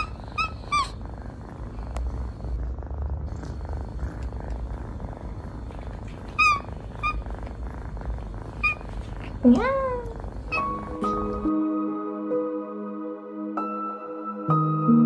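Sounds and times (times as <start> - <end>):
kittens mewing: 0.0 - 1.1, 6.2 - 11.5
kitten purring: 0.0 - 11.5.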